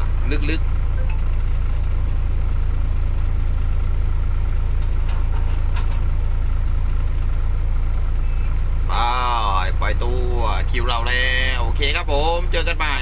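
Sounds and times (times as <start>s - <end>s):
excavator diesel engine rumbling: 0.0s - 13.0s.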